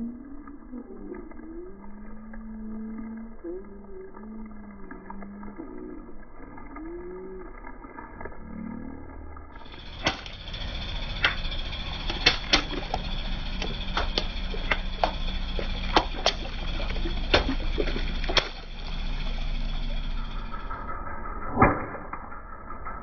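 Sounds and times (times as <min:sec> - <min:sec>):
water splashing: 0:00.0 - 0:20.4
car engine running low: 0:09.6 - 0:21.0
water balloons popping: 0:09.7 - 0:11.4, 0:12.0 - 0:19.0.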